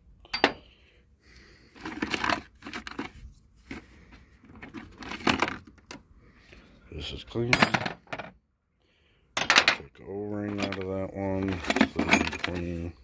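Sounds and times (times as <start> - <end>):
metal fittings clattering: 9.4 - 12.9.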